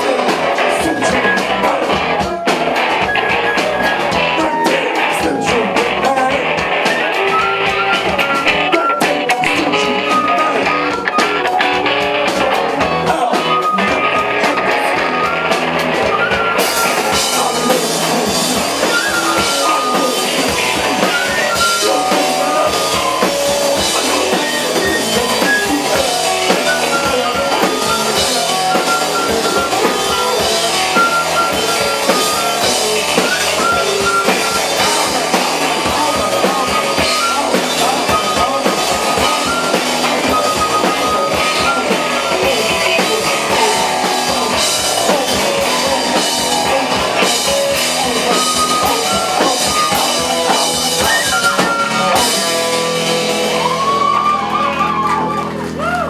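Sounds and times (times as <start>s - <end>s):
live rock band playing: 0.0s - 56.0s
flute holding high notes: 47.9s - 52.5s, 53.4s - 56.0s.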